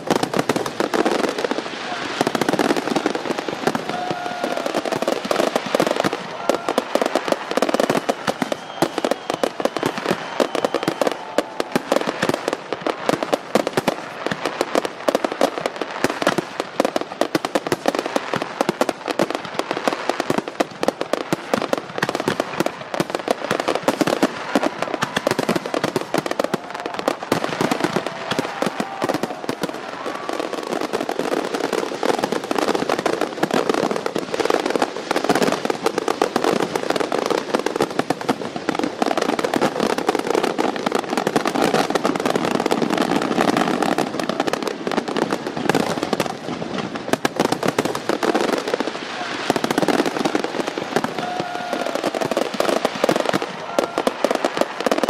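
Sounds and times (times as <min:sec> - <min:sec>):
fireworks crackling and banging: 0:00.0 - 0:55.0.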